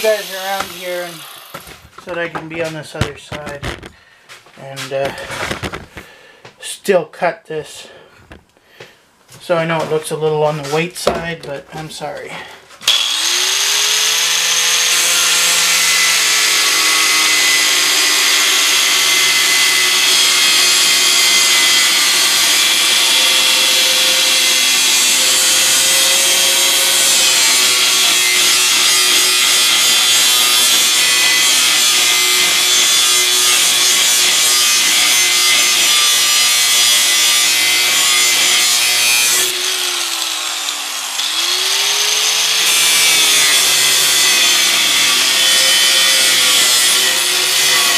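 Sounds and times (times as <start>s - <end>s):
angle grinder cutting steel: 0.0s - 2.6s, 12.8s - 47.9s.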